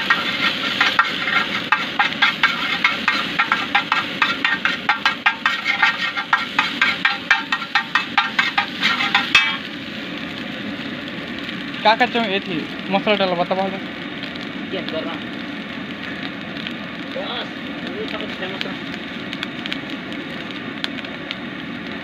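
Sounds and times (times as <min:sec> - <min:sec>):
metal spatula clacking on griddle: 0:00.0 - 0:09.7.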